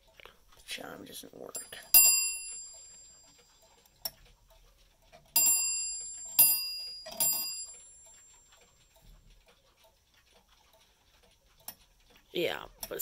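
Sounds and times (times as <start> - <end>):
clock bell striking: 1.6 - 3.5, 5.4 - 8.4.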